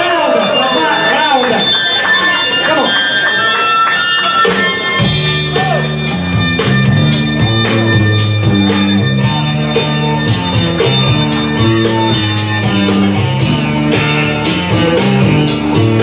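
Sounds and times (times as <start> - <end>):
music with stepping bass line: 4.2 - 16.0
steady drum beat: 4.5 - 16.0.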